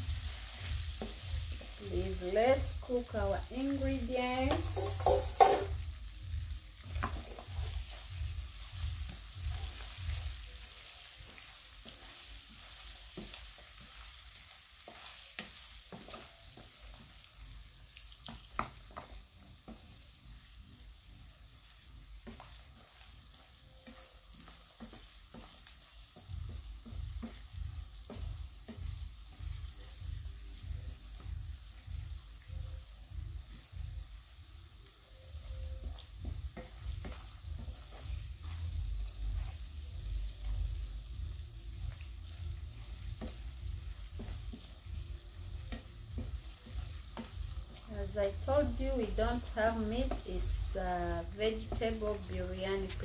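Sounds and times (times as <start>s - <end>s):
low rhythmic thumping: 0.0s - 10.5s, 26.0s - 53.0s
vegetables sizzling in hot oil: 0.0s - 53.0s
wooden spatula scraping a pan: 0.2s - 5.8s, 6.9s - 17.4s, 18.1s - 20.5s, 21.1s - 31.2s, 35.3s - 41.1s, 41.9s - 53.0s.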